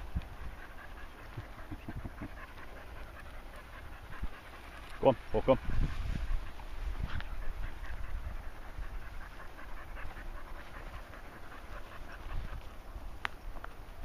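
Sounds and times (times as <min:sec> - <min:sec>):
dog panting: 0:00.0 - 0:13.2.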